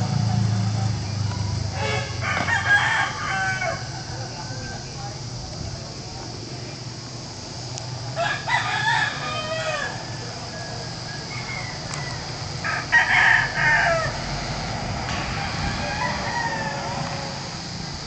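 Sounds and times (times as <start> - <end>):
roosters crowing: 1.7 - 5.3, 8.0 - 18.0.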